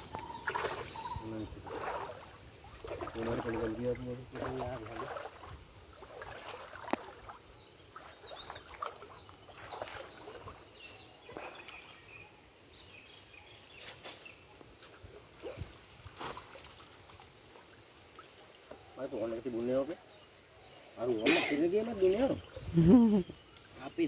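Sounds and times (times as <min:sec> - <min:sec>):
bird chirping: 0:00.0 - 0:02.2, 0:07.0 - 0:14.6, 0:18.7 - 0:24.0
wet net being handled: 0:00.0 - 0:10.7, 0:13.8 - 0:19.0
water splashing: 0:00.0 - 0:12.0.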